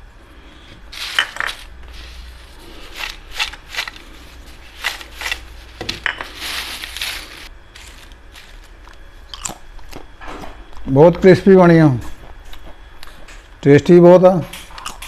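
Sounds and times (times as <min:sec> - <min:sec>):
chips crackling on paper towel: 0:01.0 - 0:09.0.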